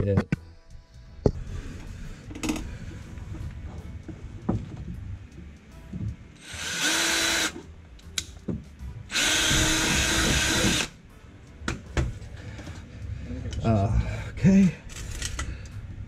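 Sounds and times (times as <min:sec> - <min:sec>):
cordless drill boring through metal: 0:06.4 - 0:07.6, 0:09.1 - 0:10.9.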